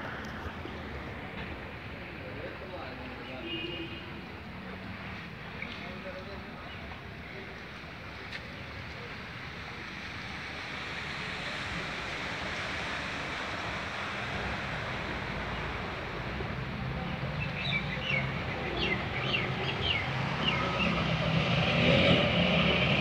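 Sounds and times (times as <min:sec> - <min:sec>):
outdoor rushing noise: 0:09.0 - 0:23.0.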